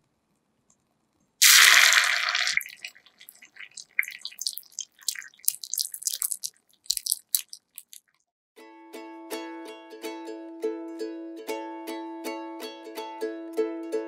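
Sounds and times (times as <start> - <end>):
oil sizzling: 1.4 - 8.0
oil crackling and popping: 1.4 - 8.3.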